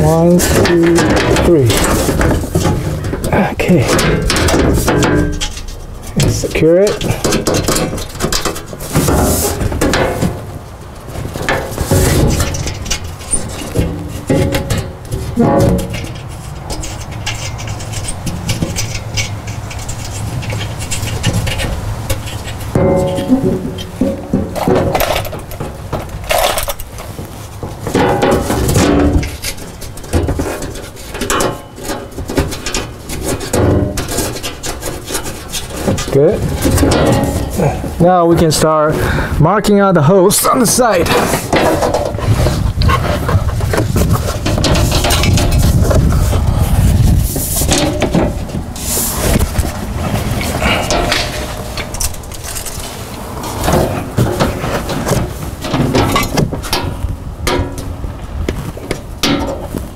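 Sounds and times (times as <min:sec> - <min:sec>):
knocks and clicks: 0:00.0 - 0:10.5, 0:11.2 - 0:27.0
metal plate scraping: 0:00.0 - 0:59.9.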